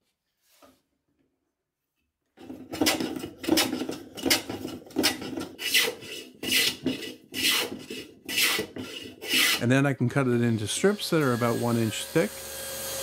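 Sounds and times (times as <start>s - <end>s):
hand plane shaving wood: 2.4s - 9.8s.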